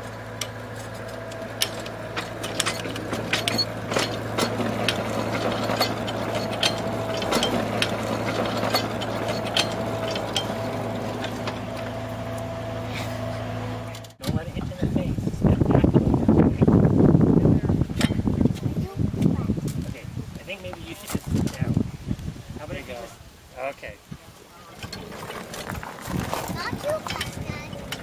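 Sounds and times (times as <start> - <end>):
handcar wheels rumbling on rail: 0.0 - 12.5, 24.7 - 28.0
sharp clicks and clanks: 0.4 - 11.9, 24.8 - 28.0.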